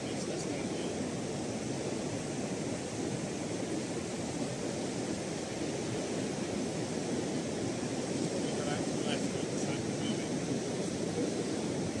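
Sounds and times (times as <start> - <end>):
sea surf breaking on shore: 0.0 - 12.0
wind buffeting microphone: 0.0 - 12.0.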